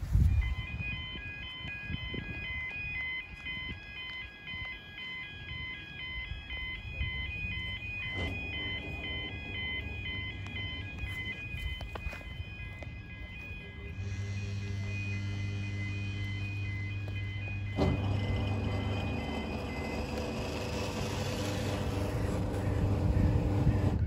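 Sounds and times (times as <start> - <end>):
warbling two-tone crossing alarm: 0.0 - 24.0
low outdoor rumble: 7.7 - 24.0.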